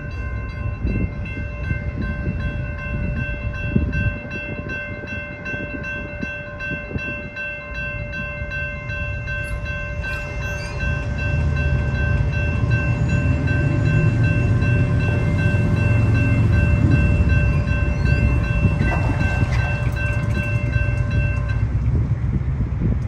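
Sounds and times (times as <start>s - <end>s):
crossing warning bell ringing: 0.0s - 22.3s
train wheels rumbling and clicking: 0.0s - 23.0s
car engines rumbling: 10.8s - 23.0s.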